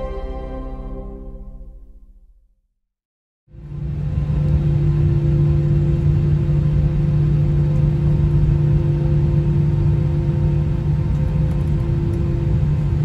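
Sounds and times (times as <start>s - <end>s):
constant low hum: 3.6s - 13.0s
jet engine rumble: 3.6s - 13.0s.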